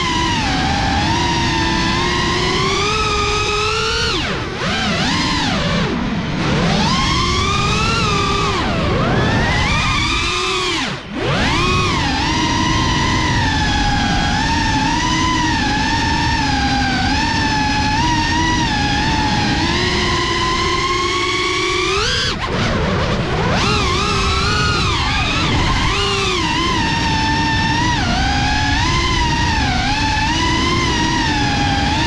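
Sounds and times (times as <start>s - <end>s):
drone propellers whining: 0.0s - 32.0s
wind rushing on microphone: 0.0s - 32.0s.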